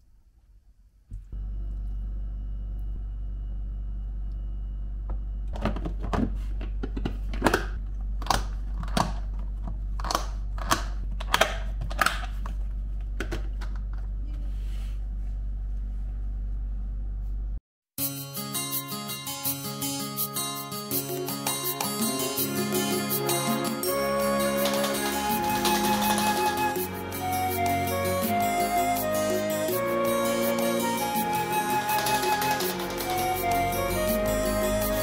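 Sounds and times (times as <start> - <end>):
steady low hum: 0.0 - 17.6
plucked-string music: 18.4 - 35.0.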